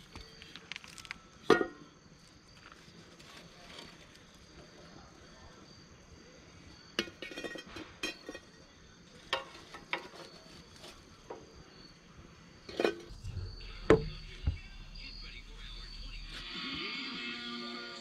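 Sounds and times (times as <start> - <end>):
high chorus of insects: 0.0 - 18.0
loud knocks: 13.1 - 15.5.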